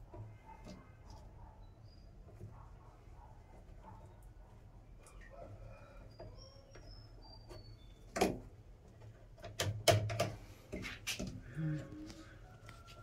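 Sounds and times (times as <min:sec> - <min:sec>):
faint high chirps: 0:05.0 - 0:08.1
sharp knocks and clicks: 0:08.1 - 0:11.4.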